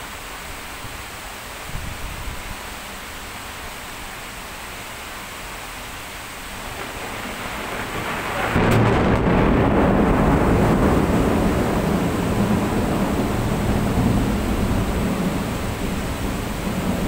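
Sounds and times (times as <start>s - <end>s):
heavy rain hissing: 0.0s - 17.0s
thunder rumbling: 6.6s - 17.0s.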